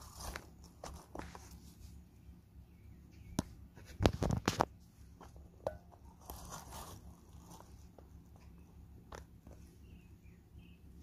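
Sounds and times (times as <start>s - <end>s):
clicks and crackles: 3.4s - 6.5s.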